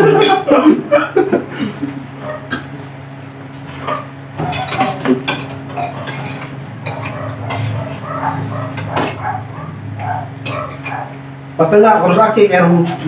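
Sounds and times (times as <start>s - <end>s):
cutlery clinking on plates: 0.0s - 0.5s, 3.6s - 9.3s, 10.4s - 11.1s
steady low hum: 0.0s - 13.0s.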